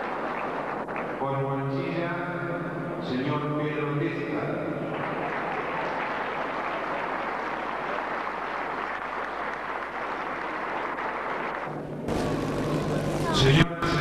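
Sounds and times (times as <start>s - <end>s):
audience applauding: 0.0s - 1.2s, 4.8s - 12.4s
low steady hum: 9.7s - 14.0s.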